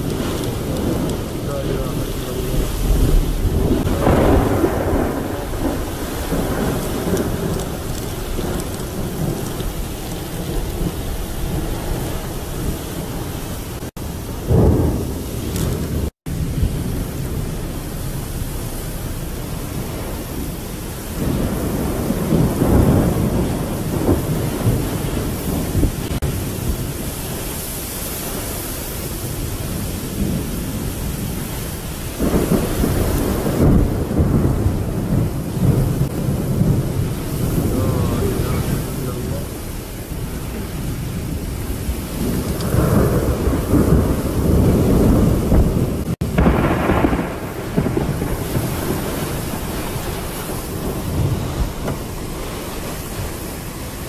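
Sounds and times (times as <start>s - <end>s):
deep rumbling surges: 0.0s - 27.0s
wind and rain rushing: 0.0s - 54.0s.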